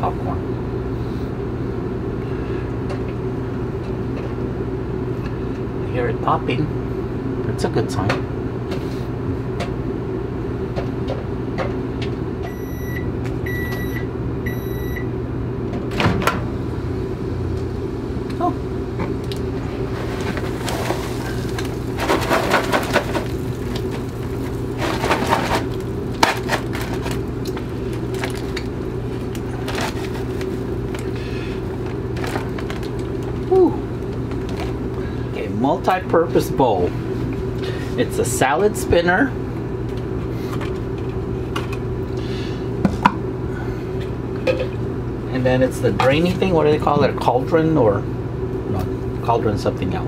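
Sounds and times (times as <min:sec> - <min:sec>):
microwave humming: 0:00.0 - 0:50.0
short microwave beeps: 0:12.4 - 0:15.1
popcorn popping: 0:18.2 - 0:35.2
paper bag crinkling: 0:19.8 - 0:34.9.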